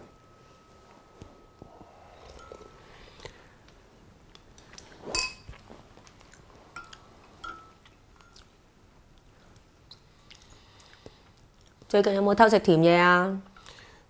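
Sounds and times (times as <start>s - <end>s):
spoons clinking on ceramic bowls: 5.2s - 5.5s, 6.8s - 8.4s.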